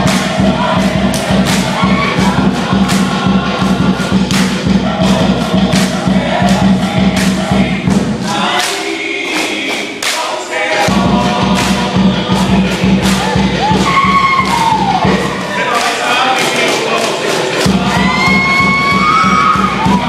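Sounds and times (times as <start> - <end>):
group singing together: 0.0 - 20.0
steady thumping beat: 0.0 - 20.0.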